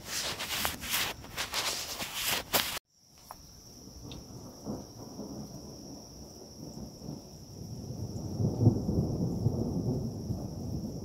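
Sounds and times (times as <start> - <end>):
close crackly rustling: 0.0 - 3.4
night insects droning: 0.0 - 11.0
distant thunder rumble: 3.7 - 11.0.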